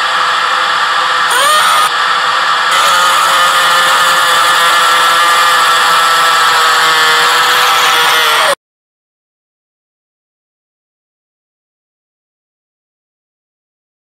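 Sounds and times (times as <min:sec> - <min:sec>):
dense whirring drone: 0:00.0 - 0:08.6.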